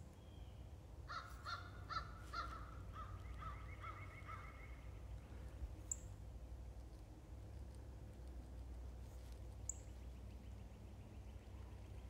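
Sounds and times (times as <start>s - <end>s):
crows cawing: 1.1s - 4.6s.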